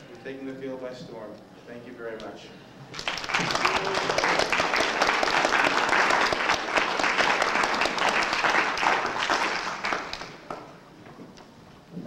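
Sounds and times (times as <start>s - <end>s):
audience applauding: 2.9s - 10.7s.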